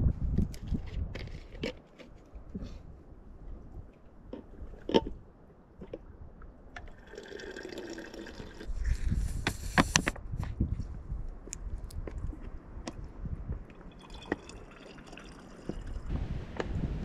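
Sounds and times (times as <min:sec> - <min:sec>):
water trickling into plastic bottle: 0:06.8 - 0:09.2, 0:13.8 - 0:16.1.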